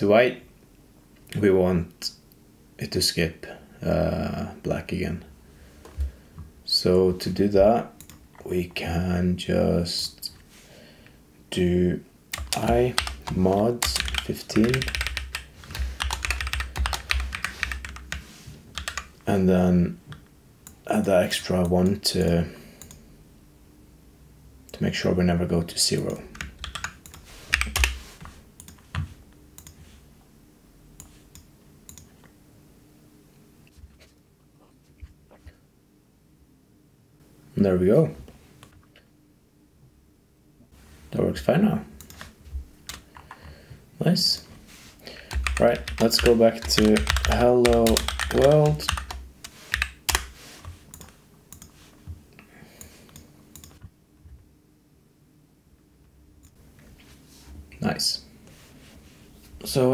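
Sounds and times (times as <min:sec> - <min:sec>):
computer keyboard typing: 0:12.3 - 0:19.2, 0:26.3 - 0:29.8, 0:45.3 - 0:51.8.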